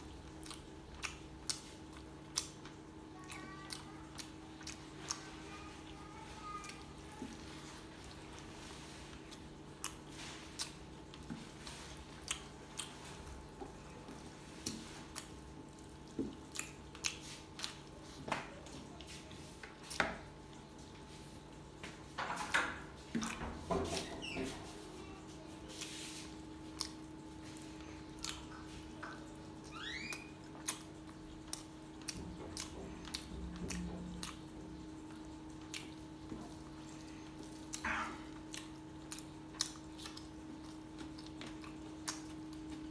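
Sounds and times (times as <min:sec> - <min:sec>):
wet chewing and lip smacks: 0:00.2 - 0:05.3, 0:09.2 - 0:11.4, 0:12.0 - 0:13.5, 0:14.6 - 0:18.2, 0:26.6 - 0:36.8, 0:37.4 - 0:42.9.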